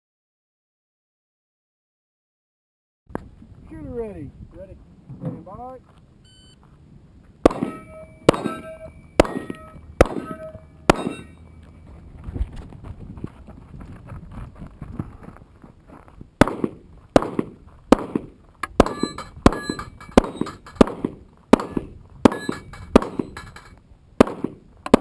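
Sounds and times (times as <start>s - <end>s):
handgun shots: 7.5s - 11.3s, 16.4s - 23.4s, 24.2s - 25.0s
steel plate ringing: 7.5s - 11.8s, 18.8s - 20.9s, 21.6s - 23.8s.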